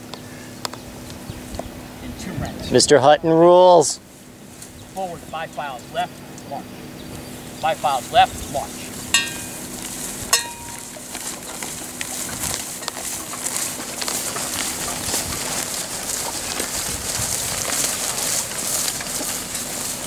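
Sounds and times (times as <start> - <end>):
footsteps marching through grass: 4.0 - 6.1, 7.0 - 20.0
equipment clinking and rattling: 9.0 - 20.0.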